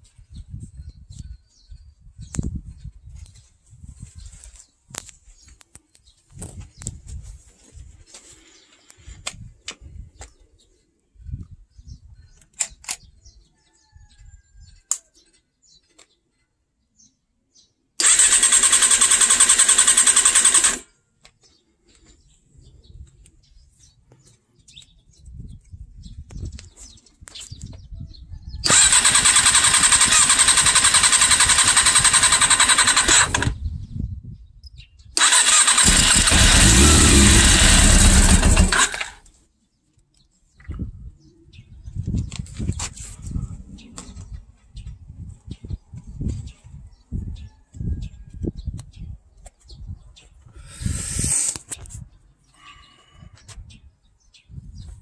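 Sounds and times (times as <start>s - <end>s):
motorcycle starter cranking: 18.0s - 20.8s, 28.6s - 33.6s, 35.2s - 39.2s.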